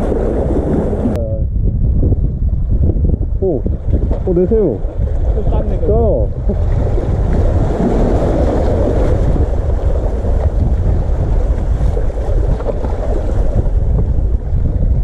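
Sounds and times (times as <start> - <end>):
wind rumble on microphone: 0.0 - 15.0
seawater sloshing against concrete: 3.6 - 13.8.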